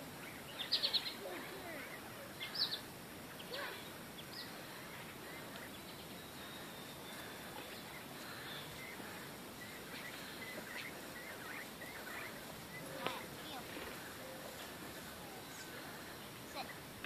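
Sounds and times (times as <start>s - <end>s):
birds chirping: 0.0s - 17.0s
faint outdoor hiss: 0.0s - 17.0s.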